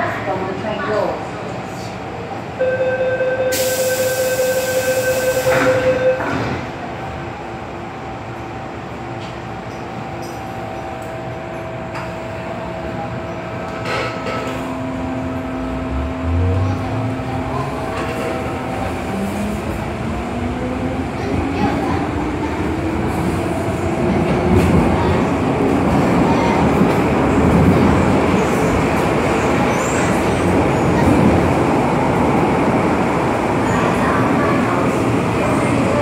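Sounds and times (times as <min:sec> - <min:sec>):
train running noise: 0:00.0 - 0:36.0
steady warning tone: 0:02.6 - 0:06.4
train doors hissing closed: 0:03.5 - 0:06.8.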